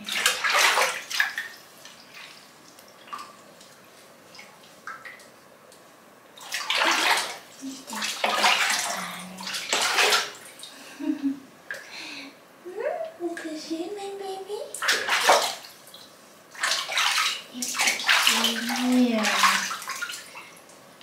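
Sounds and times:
bath water sloshing and splashing: 0:00.0 - 0:05.6, 0:06.3 - 0:10.9, 0:14.8 - 0:20.9.

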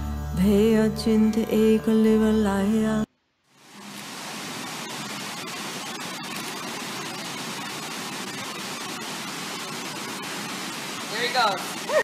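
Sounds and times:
fast river current rushing: 0:03.5 - 0:12.0.

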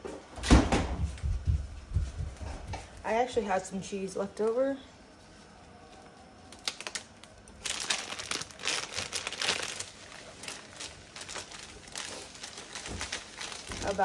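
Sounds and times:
plastic wrapper crinkling: 0:05.9 - 0:14.0.

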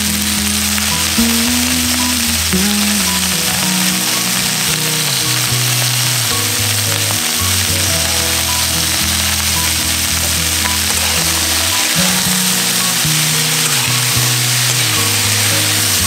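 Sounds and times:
vegetables sizzling in a pan: 0:00.0 - 0:16.0.

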